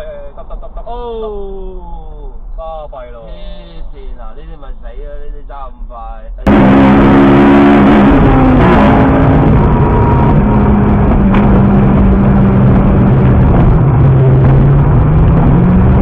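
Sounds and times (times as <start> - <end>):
car engine running hard: 6.4 - 16.0.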